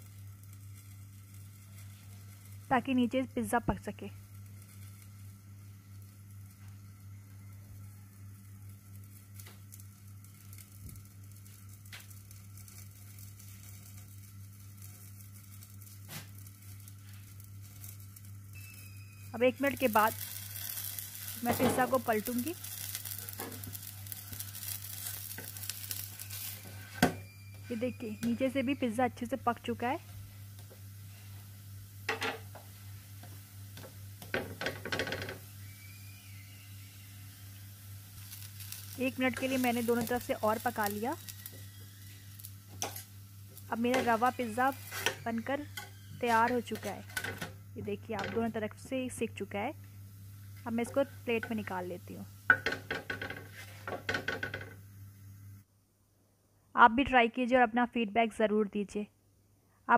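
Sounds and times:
batter sizzling in oil: 0.0 - 55.6
spatula scraping on a griddle: 10.3 - 27.9, 38.2 - 47.4, 52.5 - 54.6.

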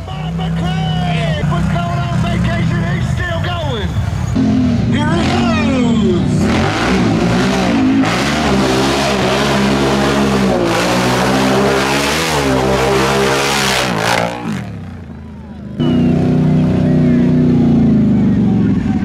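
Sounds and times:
quad engine revving: 4.4 - 19.0.

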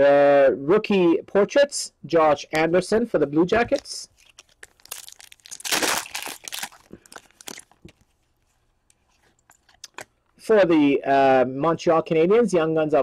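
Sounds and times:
foil wrapper tearing and crinkling: 3.8 - 8.0.

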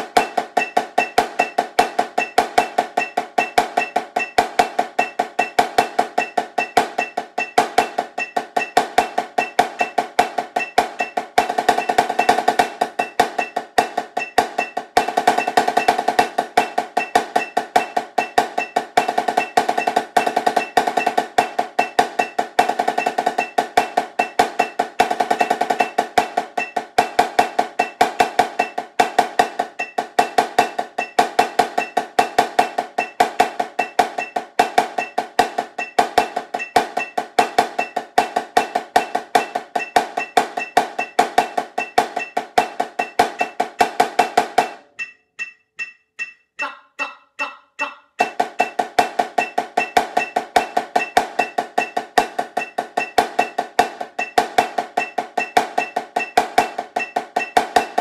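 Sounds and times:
snare drum strokes: 0.0 - 47.2, 47.8 - 58.0
metronome click: 44.6 - 48.8.

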